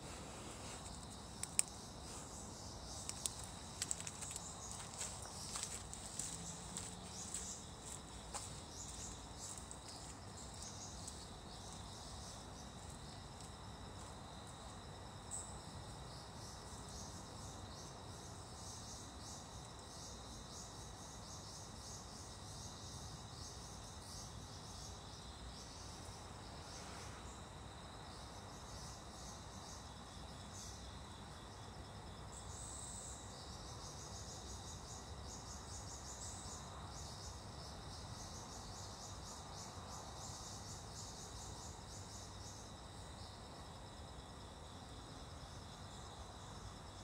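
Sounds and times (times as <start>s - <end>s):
low background noise: 0.0s - 47.0s
night insects chirping: 0.0s - 47.0s
faint clicks: 0.9s - 1.8s.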